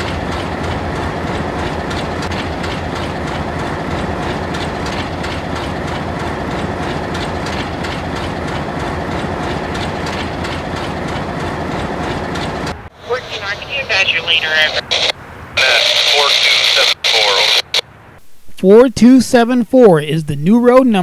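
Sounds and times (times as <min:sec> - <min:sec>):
train wheels clacking on rails: 0:00.0 - 0:12.8
diesel locomotives rumbling: 0:00.0 - 0:18.3.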